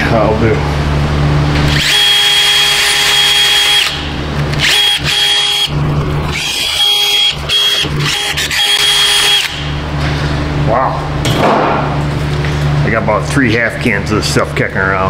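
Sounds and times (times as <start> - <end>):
power tool whining: 1.6 - 9.8.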